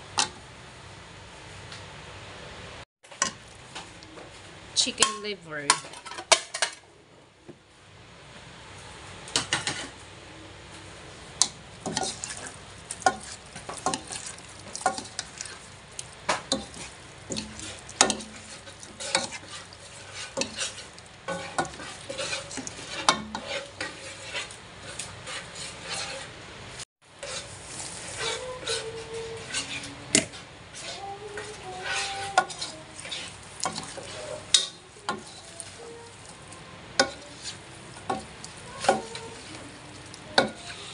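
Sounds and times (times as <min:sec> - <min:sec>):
food sizzling in a frying pan: 0:08.2 - 0:40.9
utensil scraping and knocking pan: 0:11.8 - 0:15.6, 0:16.3 - 0:26.3, 0:27.2 - 0:36.0, 0:37.0 - 0:40.9.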